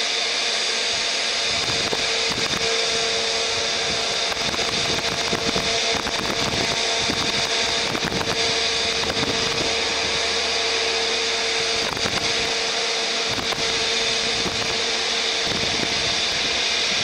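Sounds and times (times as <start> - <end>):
distant freight train drone: 0.0 - 17.0.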